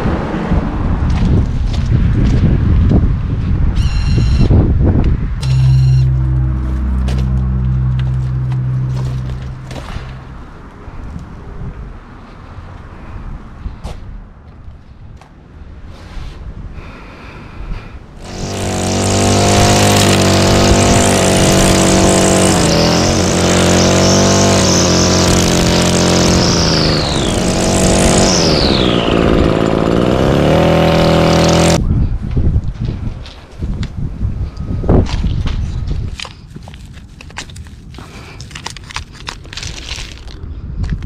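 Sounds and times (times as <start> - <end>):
string trimmer engine revving: 5.4 - 10.3, 18.2 - 31.8.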